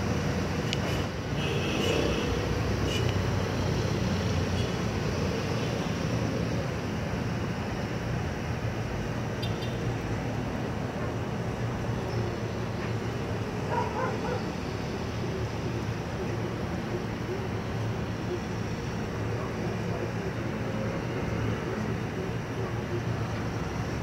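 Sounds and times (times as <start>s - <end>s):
distant city traffic: 0.0s - 24.0s.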